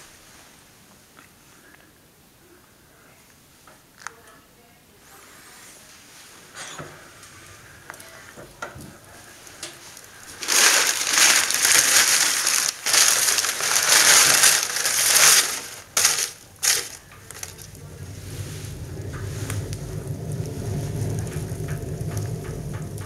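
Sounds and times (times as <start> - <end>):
paper crumpling: 10.0 - 17.7.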